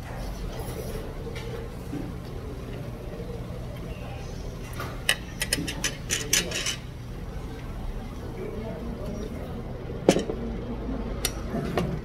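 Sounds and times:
low background hum: 0.0s - 12.0s
metal utensils clinking against bowls: 5.0s - 6.9s.

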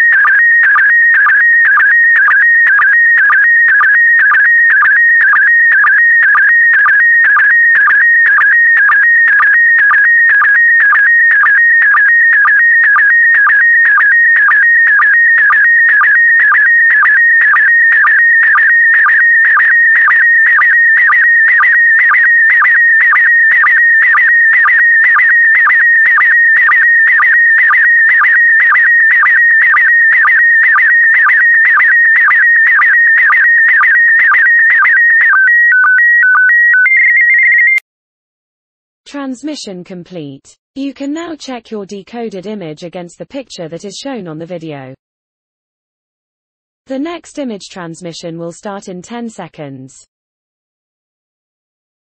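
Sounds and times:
two-pitch beeps: 0.0s - 37.8s.

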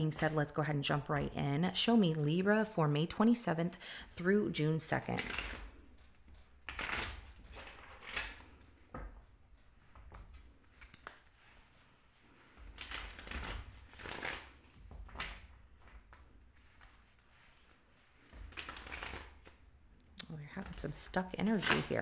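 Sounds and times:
cards rustling and riffling: 9.8s - 11.7s, 12.6s - 19.6s.

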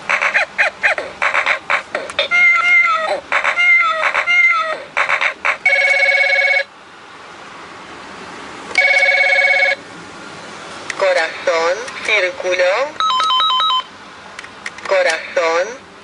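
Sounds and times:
electronic telephone ring: 5.7s - 6.7s, 8.8s - 9.8s, 13.0s - 13.9s.

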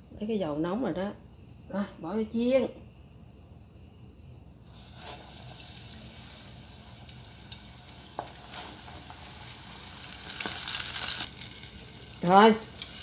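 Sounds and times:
deep-frying hiss: 4.5s - 13.0s
oil popping and crackling: 5.5s - 13.0s.

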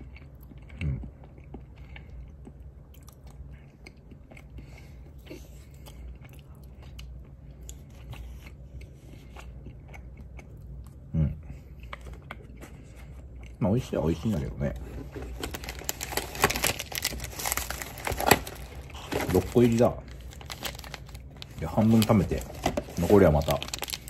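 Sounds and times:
chewing with wet mouth clicks: 0.0s - 11.1s.

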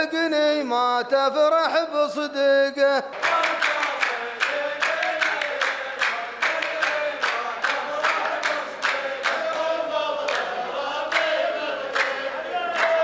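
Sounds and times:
men chanting in unison: 1.0s - 13.0s
sharp hand claps: 3.1s - 13.0s.

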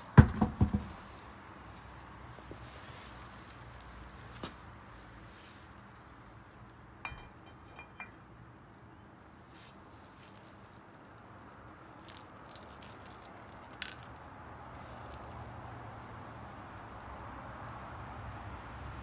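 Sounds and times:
metal lug nuts clinking: 7.0s - 8.3s.

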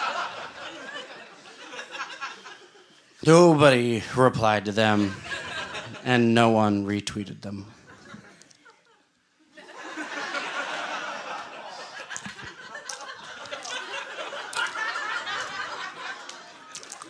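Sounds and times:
audience laughing: 0.0s - 3.1s, 4.8s - 6.1s, 7.7s - 17.0s.

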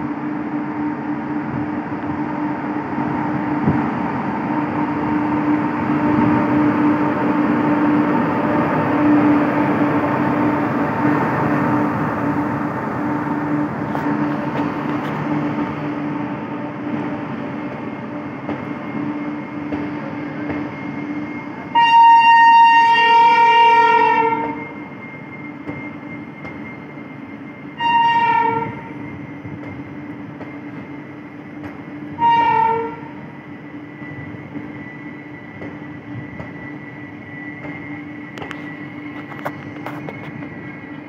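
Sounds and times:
train coaches rolling: 0.0s - 41.0s
train horn blasts: 21.6s - 24.9s, 27.7s - 29.2s, 32.1s - 33.2s.

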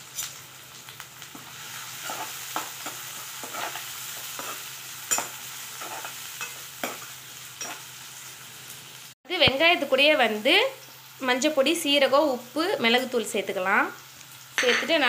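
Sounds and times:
onions sizzling in oil: 0.0s - 15.0s
metal spatula scraping pan: 2.0s - 7.0s.

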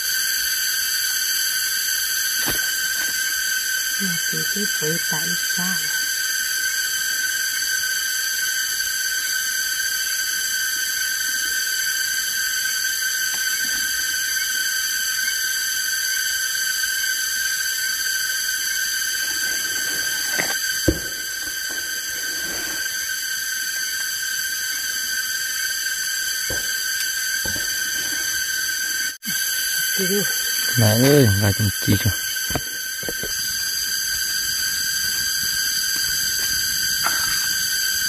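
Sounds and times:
cicadas droning: 0.0s - 38.0s.

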